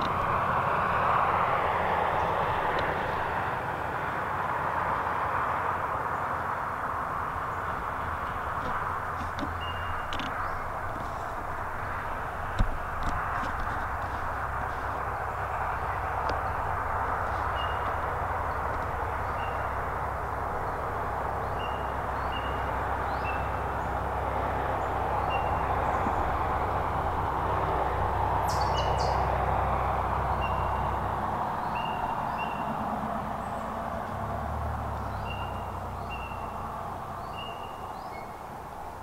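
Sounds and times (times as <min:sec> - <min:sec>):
road traffic rumble: 0:00.0 - 0:39.0
small bird chirping: 0:09.2 - 0:10.7, 0:28.5 - 0:29.2.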